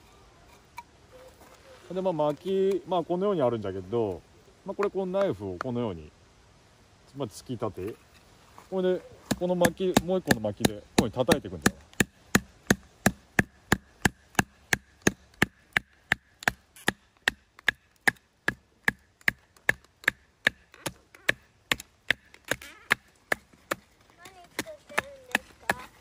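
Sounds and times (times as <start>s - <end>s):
wood knocking on knife spine: 9.3s - 25.9s.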